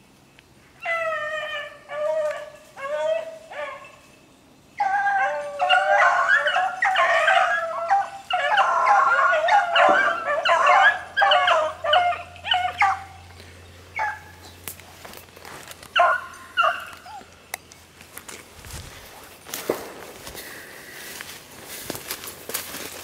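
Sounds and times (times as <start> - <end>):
hounds baying: 0.8 - 4.1, 4.7 - 17.4.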